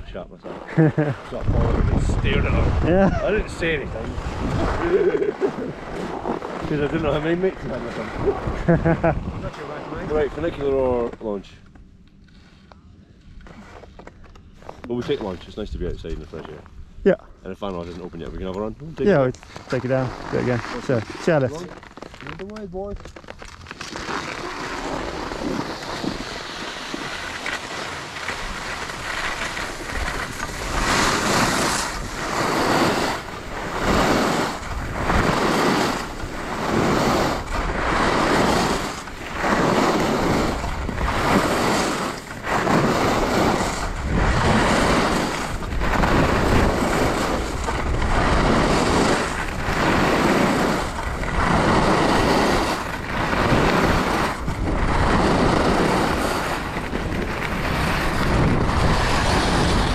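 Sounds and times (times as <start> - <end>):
ski scrape: 0.4 - 11.5, 12.2 - 12.7, 13.4 - 16.6, 17.6 - 59.9
skis sliding on snow: 0.4 - 11.6, 13.4 - 16.6, 17.6 - 59.9
wind rushing over microphone: 1.3 - 11.4, 24.6 - 59.9.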